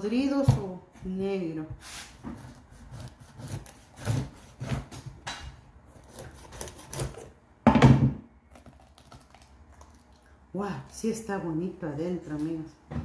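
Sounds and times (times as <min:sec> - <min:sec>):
husk cracking: 0:08.5 - 0:10.2.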